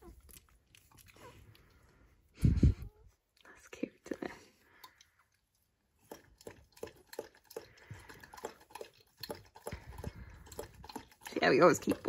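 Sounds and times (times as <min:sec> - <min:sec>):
dog lapping water: 0:05.9 - 0:12.0.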